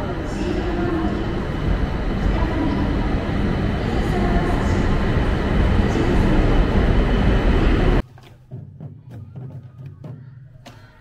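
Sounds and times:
train running rumble: 0:00.0 - 0:08.1.

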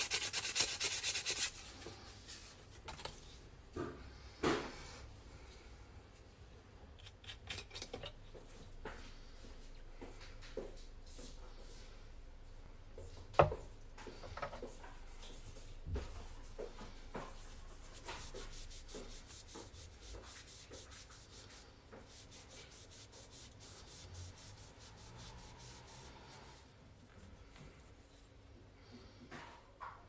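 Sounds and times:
cloth rubbing on wood: 0:14.6 - 0:26.7.

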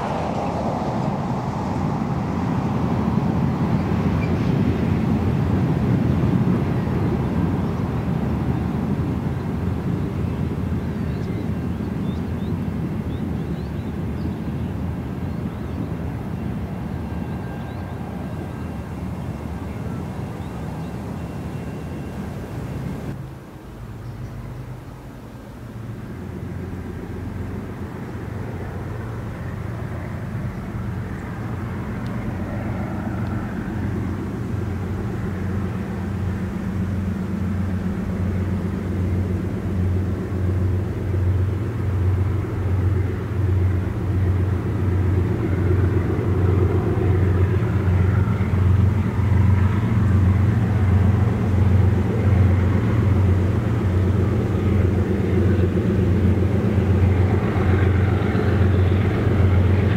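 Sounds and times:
diesel locomotive engine drone: 0:00.0 - 0:59.9.

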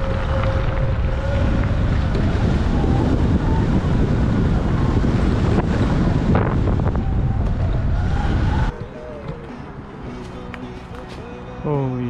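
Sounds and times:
wind rumble on microphone: 0:00.0 - 0:11.4
tyres on gravel: 0:08.8 - 0:11.6.

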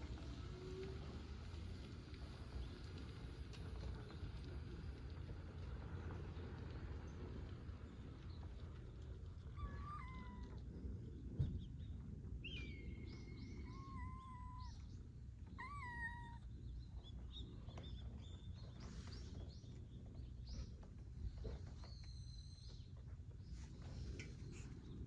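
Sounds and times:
cat meowing: 0:09.5 - 0:10.6, 0:13.6 - 0:14.8, 0:15.4 - 0:16.5.

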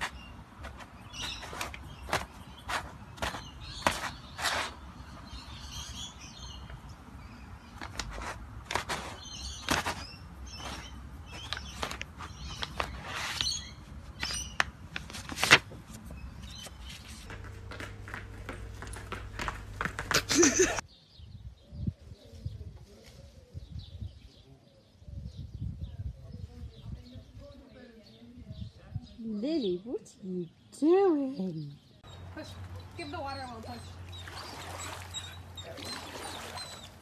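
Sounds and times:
paper rustling and crinkling: 0:00.0 - 0:04.8, 0:07.7 - 0:20.7.

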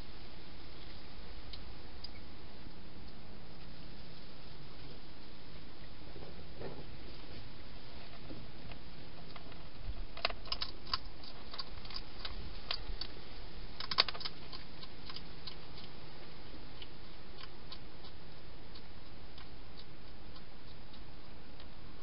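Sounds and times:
steady hiss: 0:00.0 - 0:22.0
hedgehog crunching dry food: 0:07.1 - 0:22.0.

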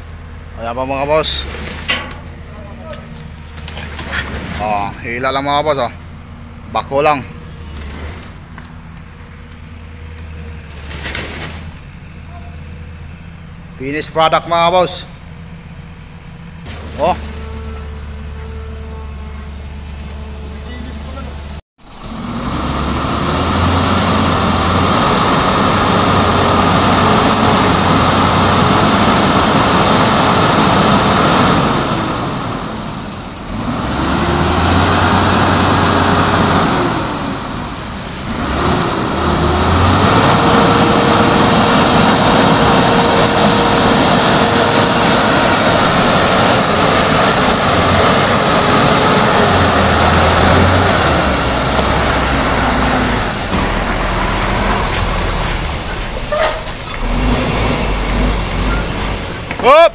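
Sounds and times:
diesel truck engine revving hard: 0:20.3 - 0:59.9.

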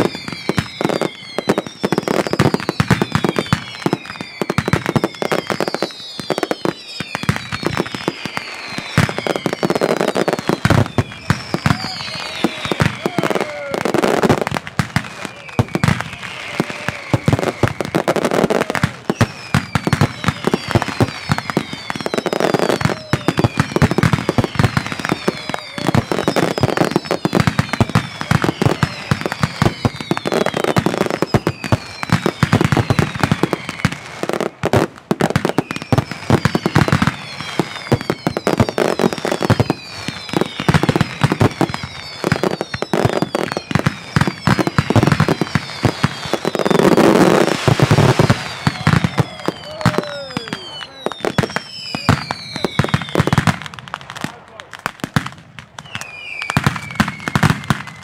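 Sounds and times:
high falling whistles: 0:00.0 - 0:34.0, 0:35.4 - 0:53.5, 0:55.8 - 0:58.0
firecracker bangs: 0:34.9 - 0:58.0.

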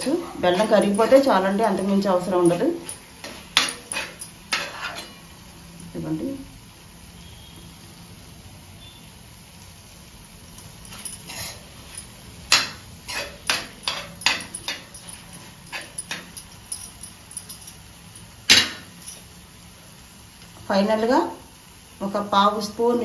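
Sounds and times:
steel spoon scraping brass pan: 0:00.0 - 0:05.2, 0:10.9 - 0:17.1.

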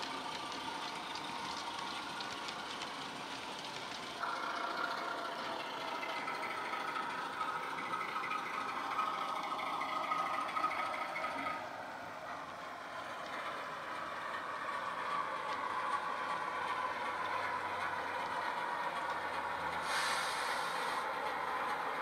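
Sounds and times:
steady whine: 0:00.0 - 0:19.5
model train engine sound from speaker: 0:00.0 - 0:22.0
burst of hiss: 0:19.8 - 0:21.1.

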